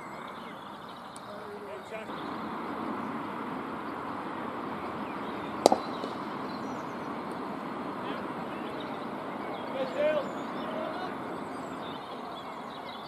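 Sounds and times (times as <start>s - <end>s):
outdoor background noise: 0.0s - 13.0s
cricket bat hitting ball: 5.6s - 6.3s.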